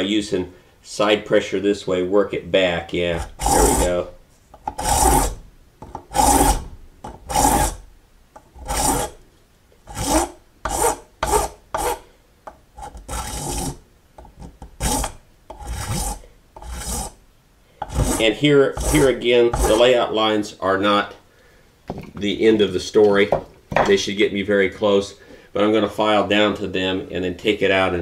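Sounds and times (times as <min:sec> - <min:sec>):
file rasping on brass: 0:03.1 - 0:05.4, 0:06.1 - 0:07.8, 0:08.6 - 0:09.2, 0:09.9 - 0:12.1, 0:12.8 - 0:17.2, 0:17.8 - 0:20.0.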